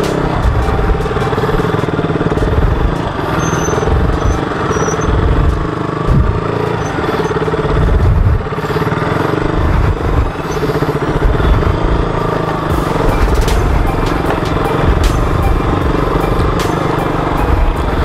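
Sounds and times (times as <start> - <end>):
motorcycle engine at low revs: 0.0 - 18.0
thumps from bumps: 2.3 - 8.5
wind on microphone: 2.3 - 16.6.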